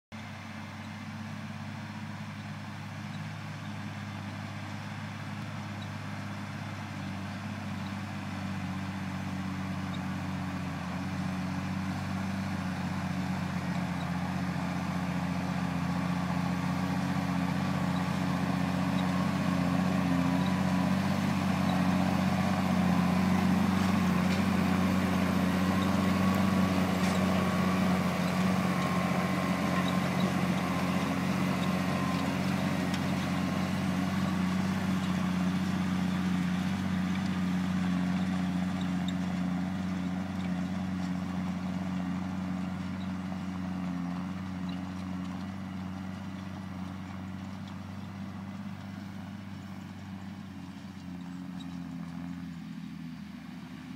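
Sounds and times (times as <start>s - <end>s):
tractor diesel engine running: 0.1s - 53.9s.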